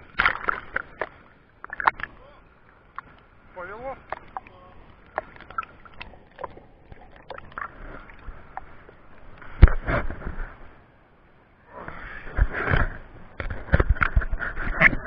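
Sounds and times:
water splashing and rushing: 0:00.0 - 0:11.0
river water sloshing and gurgling: 0:00.0 - 0:15.0.

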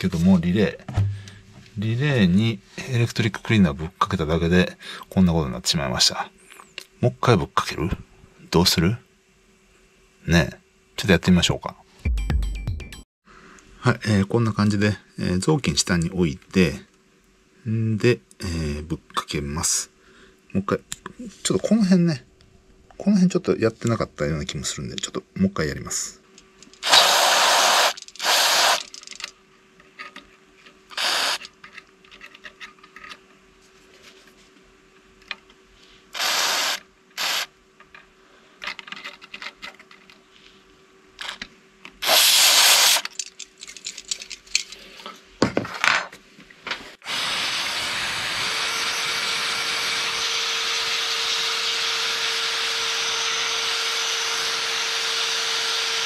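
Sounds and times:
aerosol spray hissing: 0:36.2 - 0:37.5, 0:42.0 - 0:43.0.

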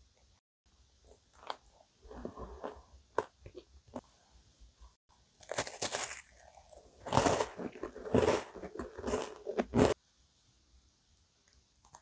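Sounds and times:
biscuit crunching: 0:05.4 - 0:10.0.

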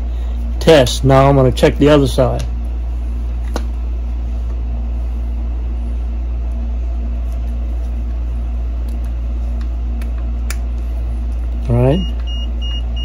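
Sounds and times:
low machinery hum: 0:00.0 - 0:13.0.

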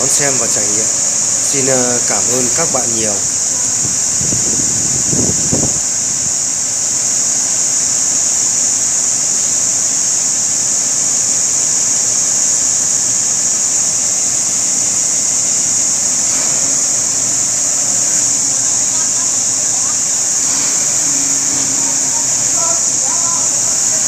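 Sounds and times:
loud high-pitched hiss: 0:00.0 - 0:24.0
crane engine running: 0:12.8 - 0:24.0.

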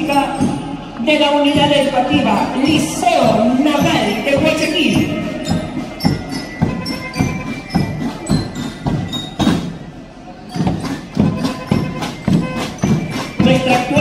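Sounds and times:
marching drums: 0:00.0 - 0:14.0
bell lyre notes: 0:10.4 - 0:14.0.

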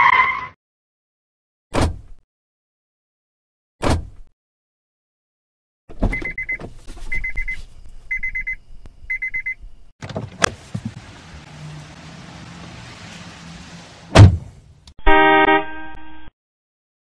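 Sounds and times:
car warning chime beeping: 0:06.1 - 0:09.6
sharp thump: 0:14.1 - 0:14.5.

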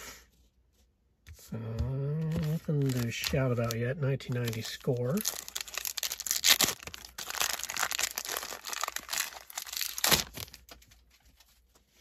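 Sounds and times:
wrapper crinkling and tearing: 0:02.2 - 0:11.6
loud wrapper crunch: 0:02.3 - 0:10.8.

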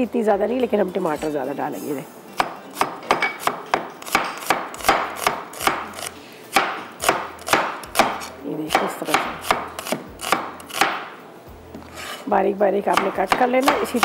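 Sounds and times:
knife chopping on cutting board: 0:02.4 - 0:11.1, 0:12.9 - 0:14.0.

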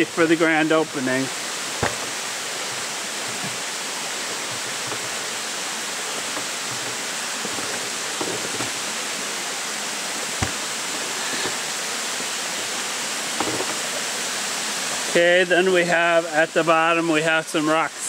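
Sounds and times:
creek flowing over rocks: 0:00.0 - 0:18.0
footsteps on wooden stairs: 0:01.8 - 0:09.0, 0:10.2 - 0:11.7, 0:13.4 - 0:13.9.

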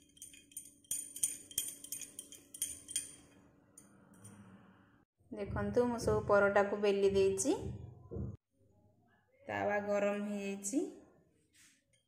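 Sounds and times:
light metallic clinks: 0:00.0 - 0:03.4.

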